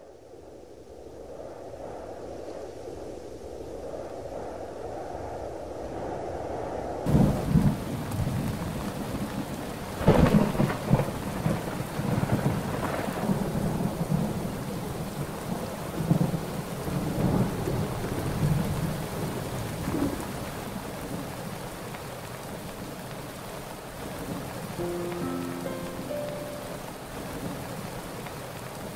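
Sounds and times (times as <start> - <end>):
thunder rolling: 7.1 - 20.5
steady rain: 7.1 - 28.9.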